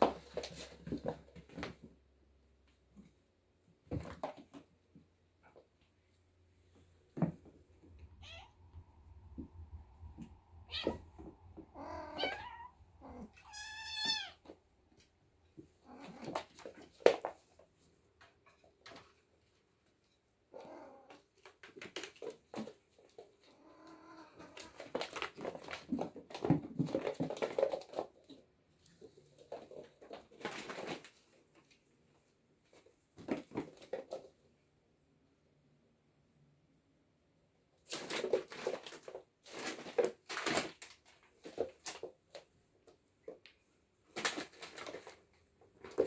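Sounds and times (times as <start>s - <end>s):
kittens scuffling and scratching: 0.0s - 34.6s, 37.8s - 46.0s
kittens meowing: 8.2s - 8.7s, 10.6s - 14.5s.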